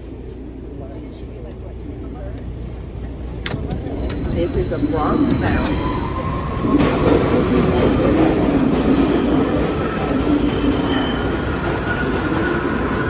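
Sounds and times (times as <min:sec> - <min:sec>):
subway train rumbling: 0:00.0 - 0:13.0
high-pitched wheel squeal: 0:03.9 - 0:12.7.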